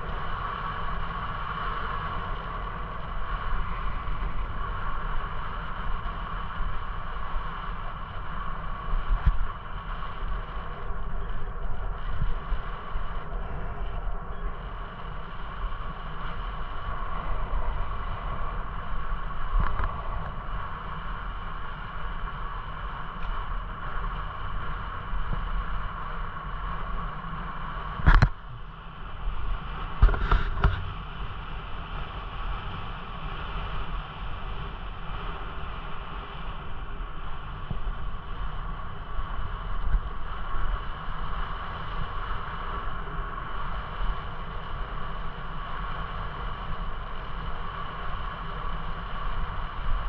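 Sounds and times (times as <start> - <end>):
bicycle rolling on pavement: 0.0 - 50.0.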